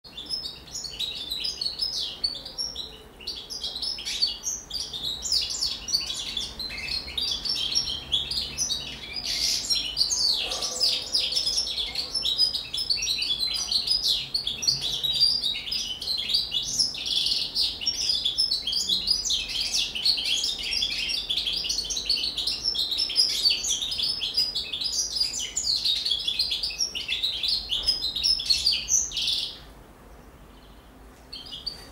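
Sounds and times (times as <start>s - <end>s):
finch twittering song: 0.1s - 31.9s.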